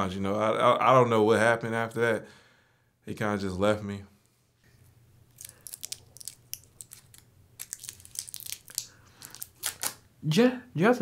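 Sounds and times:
candy wrapper crinkling: 0:05.2 - 0:10.0.

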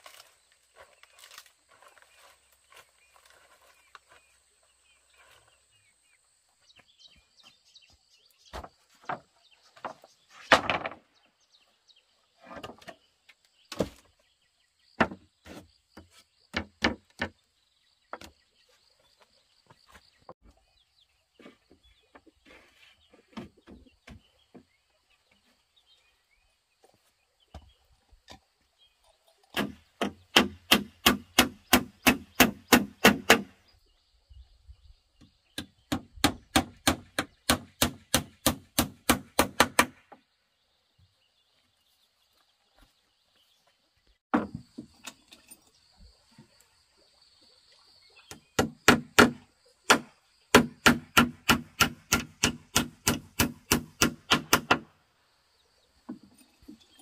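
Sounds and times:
blade chopping wood: 0:29.5 - 0:33.6, 0:48.6 - 0:54.9.

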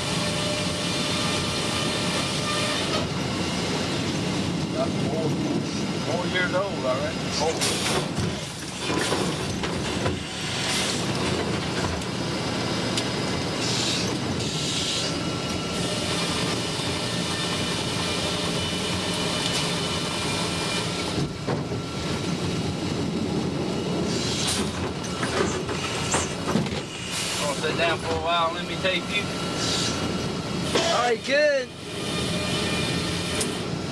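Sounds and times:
sawmill saw cutting log: 0:00.0 - 0:09.3, 0:12.4 - 0:21.3, 0:25.6 - 0:33.8.

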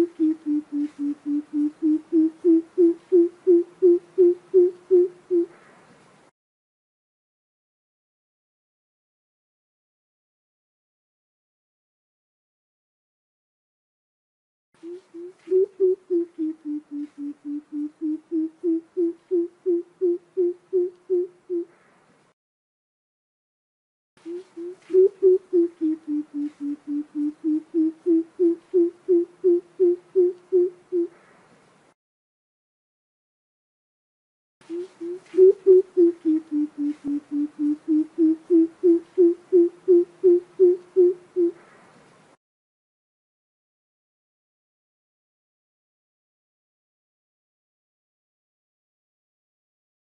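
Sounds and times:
bird deep hooting calls: 0:00.0 - 0:05.6, 0:14.8 - 0:21.8, 0:24.2 - 0:31.3, 0:34.7 - 0:41.7.

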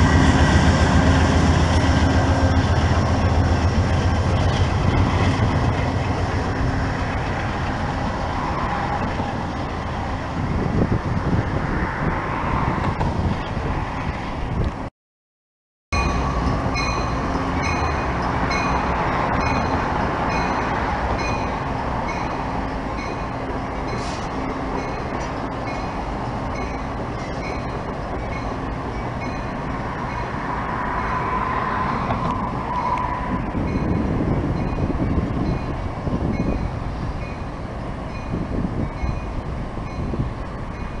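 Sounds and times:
diesel locomotive engine: 0:00.0 - 0:14.9, 0:16.0 - 0:41.0
rail noise: 0:00.0 - 0:14.9, 0:15.9 - 0:41.0.

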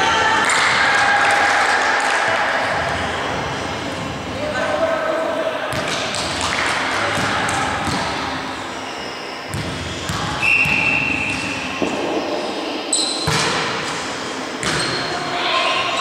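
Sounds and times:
referee whistle blast: 0:10.4 - 0:11.4
volleyball being hit: 0:13.2 - 0:13.9.

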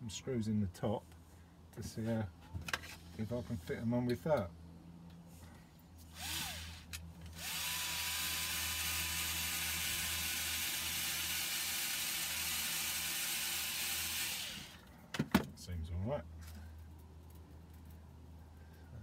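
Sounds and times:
cordless screwdriver whine: 0:06.1 - 0:14.8.

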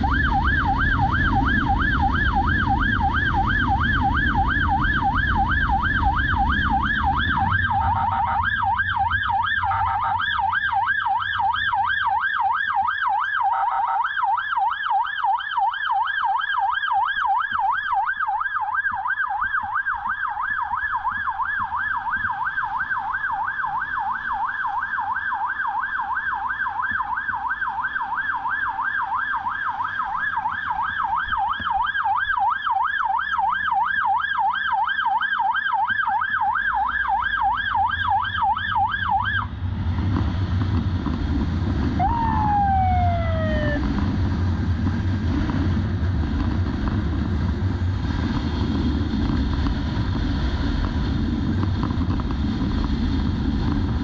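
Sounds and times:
wind noise: 0:00.0 - 0:11.9, 0:38.3 - 0:54.0
siren yelping: 0:00.0 - 0:39.6, 0:41.9 - 0:44.0.

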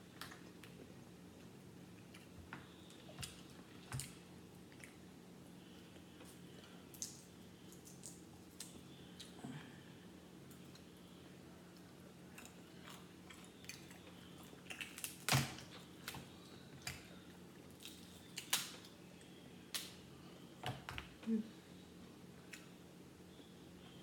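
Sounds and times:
chewing: 0:01.4 - 0:05.0, 0:11.7 - 0:18.4
crab shells cracking: 0:14.7 - 0:17.0.

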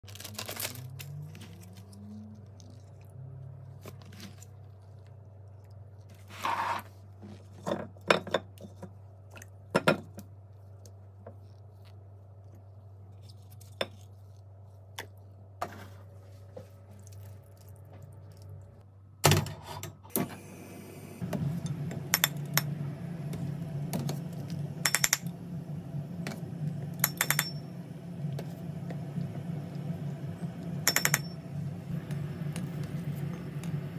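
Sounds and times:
low steady hum: 0:07.0 - 0:33.9
gas burner rushing: 0:20.1 - 0:33.9
metal skimmer clinking on pot: 0:30.8 - 0:31.4.

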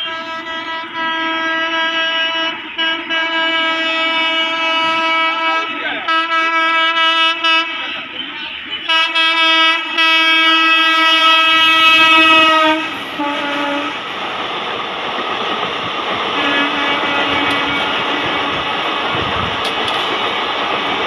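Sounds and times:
train horn blasts: 0:00.0 - 0:08.1, 0:08.8 - 0:14.1, 0:16.4 - 0:18.8
rushing train coaches: 0:00.0 - 0:21.0
train wheel clatter: 0:11.7 - 0:21.0.

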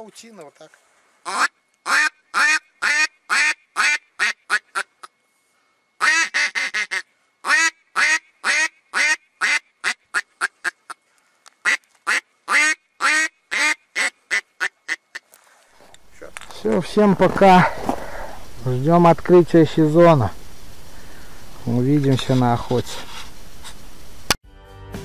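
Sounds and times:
duck call quacks: 0:01.2 - 0:05.1, 0:06.0 - 0:11.0, 0:11.6 - 0:15.3.

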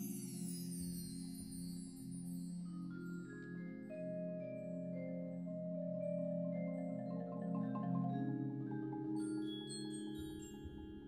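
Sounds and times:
marimba rolls: 0:05.6 - 0:11.0.

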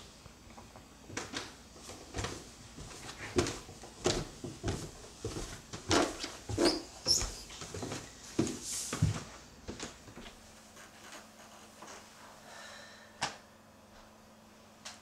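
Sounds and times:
footsteps on wooden stairs: 0:01.1 - 0:10.4.

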